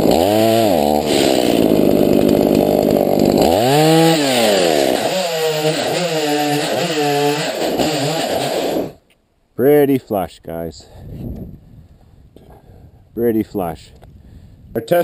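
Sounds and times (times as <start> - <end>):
chainsaw cutting log: 0.0 - 9.0.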